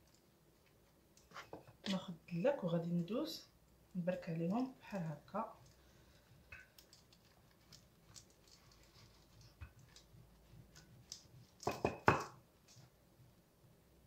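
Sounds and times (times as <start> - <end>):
wooden pin knocking on counter: 11.6 - 12.4.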